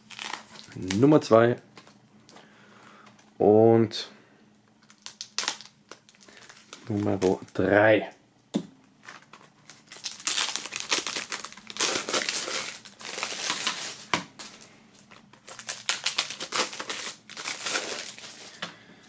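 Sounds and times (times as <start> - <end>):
plastic film crinkling: 0.0 - 2.0, 4.8 - 7.7, 9.0 - 18.6.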